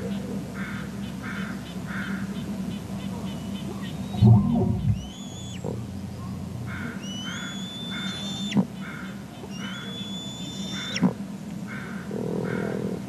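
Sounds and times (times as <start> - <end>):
short bird calls: 3.0 - 5.8, 6.7 - 11.1.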